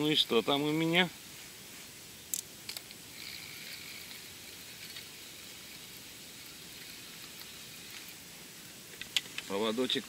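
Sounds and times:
outdoor background hiss: 0.0 - 10.0.

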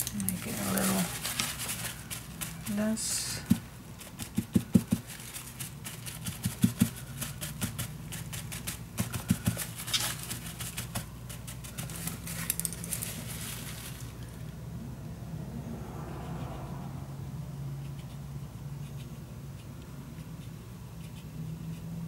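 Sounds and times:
tissue dabbing on wet paper: 0.0 - 14.2
steady low hum: 0.0 - 22.0.

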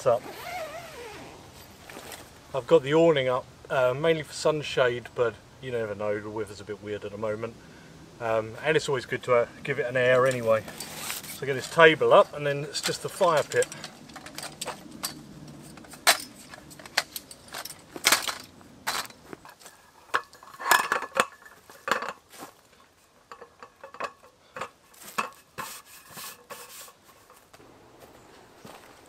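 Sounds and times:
metal frame clicking: 10.1 - 22.2.

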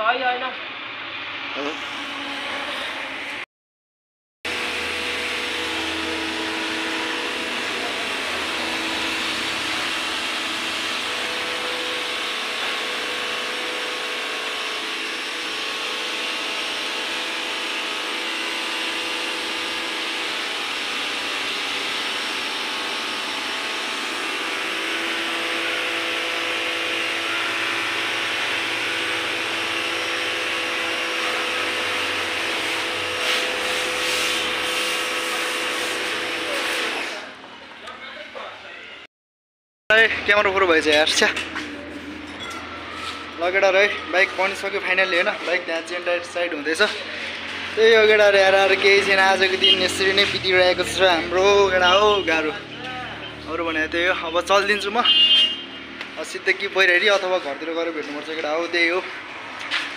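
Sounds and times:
pressure washer motor hum: 4.5 - 37.9, 40.0 - 59.9
water jet hissing: 32.6 - 36.7.

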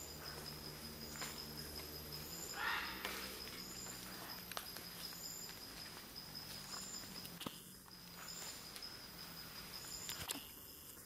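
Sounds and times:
insect chirp: 0.0 - 11.0
insects droning: 0.0 - 11.0.

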